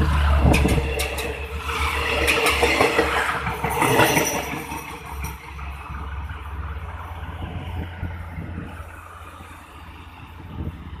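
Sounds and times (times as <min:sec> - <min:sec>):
wheels clicking and clattering: 0:00.0 - 0:05.9
train wheels rumbling on rails: 0:00.0 - 0:11.0.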